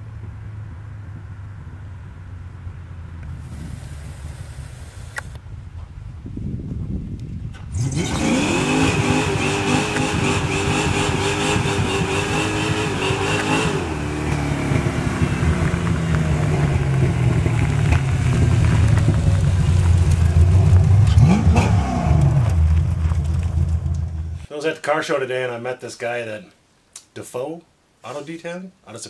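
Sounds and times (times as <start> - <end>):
car engine revving: 7.6 - 24.5.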